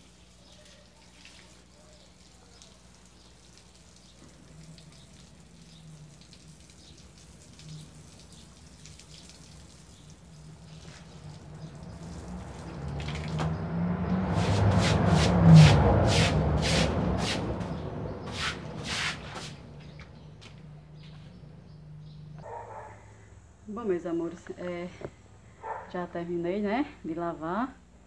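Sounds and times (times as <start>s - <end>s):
hose water splashing on concrete: 0.0s - 21.2s.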